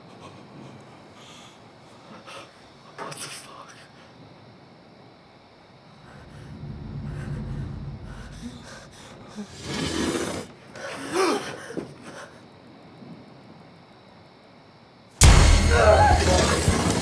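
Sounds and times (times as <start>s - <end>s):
low rumble: 6.0s - 9.5s
person breathing hard: 6.0s - 9.6s.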